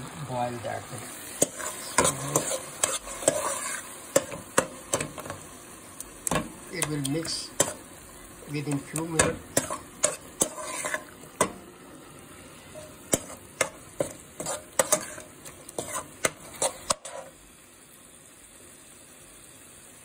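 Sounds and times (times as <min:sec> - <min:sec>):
frying sizzle: 0:00.0 - 0:20.0
metal spoon scraping a pan: 0:01.1 - 0:05.5, 0:06.2 - 0:07.9, 0:08.6 - 0:11.6, 0:12.6 - 0:17.4.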